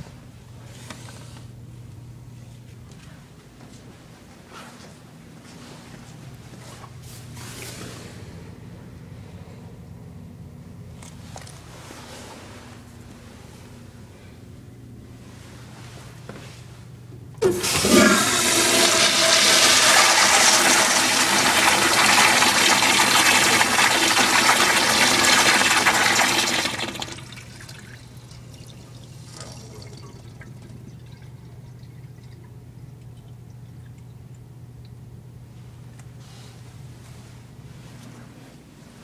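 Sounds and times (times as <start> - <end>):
toilet flushing: 17.4 - 32.5.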